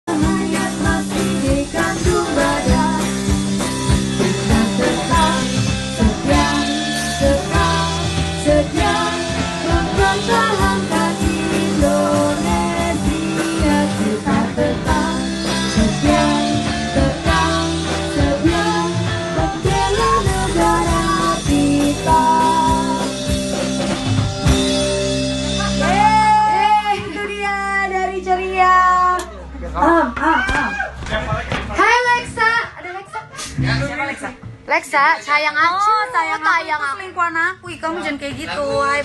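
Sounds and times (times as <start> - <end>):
loud amplified band music: 0.0 - 27.6
women singing into microphones: 0.1 - 3.5, 4.1 - 23.2.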